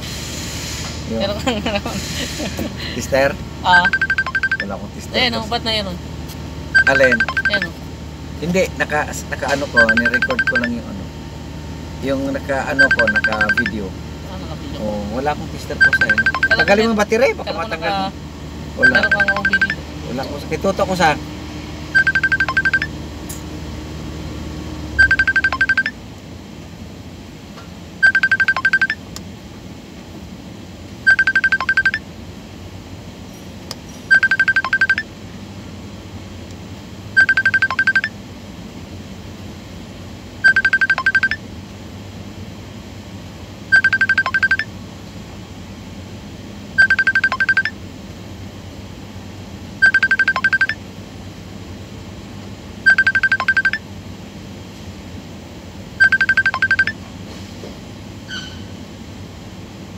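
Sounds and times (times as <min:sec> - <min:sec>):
idling engine hum: 0:00.9 - 0:03.8, 0:04.6 - 0:25.4
rapid high warning beeps: 0:03.7 - 0:04.8, 0:06.7 - 0:07.8, 0:09.4 - 0:10.9, 0:12.4 - 0:13.8, 0:15.7 - 0:17.2, 0:18.8 - 0:19.8, 0:21.9 - 0:23.0, 0:25.0 - 0:26.0, 0:28.0 - 0:29.0, 0:31.1 - 0:32.0, 0:34.1 - 0:35.1, 0:37.2 - 0:38.2, 0:40.4 - 0:41.4, 0:43.7 - 0:44.7, 0:46.8 - 0:47.8, 0:49.8 - 0:50.8, 0:52.8 - 0:53.8, 0:56.0 - 0:57.0.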